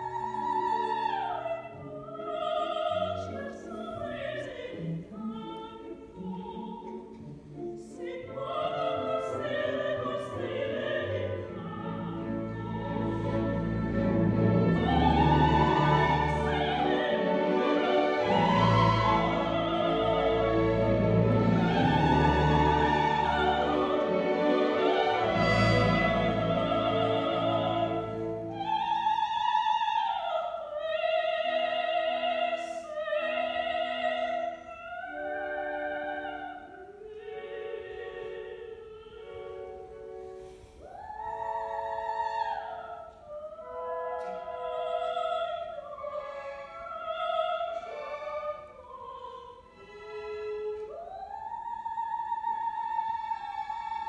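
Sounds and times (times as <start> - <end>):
opera singers with orchestra: 0.0 - 54.0.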